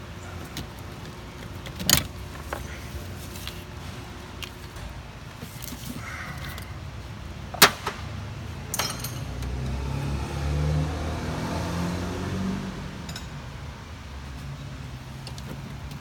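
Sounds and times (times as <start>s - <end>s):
vehicle engine rumbling: 0.0s - 16.0s
wrench clinking on metal: 8.7s - 9.5s.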